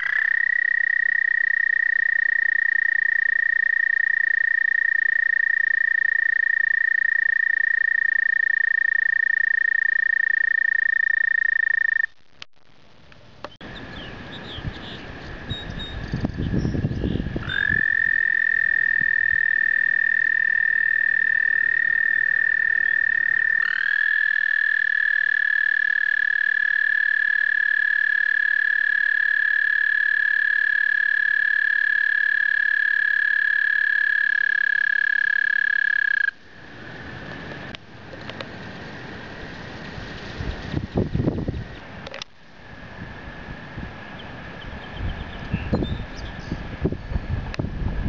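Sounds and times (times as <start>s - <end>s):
fainter toad trills: 0.0s - 12.2s, 17.0s - 36.4s
toad trilling: 0.0s - 12.2s, 14.4s - 36.4s.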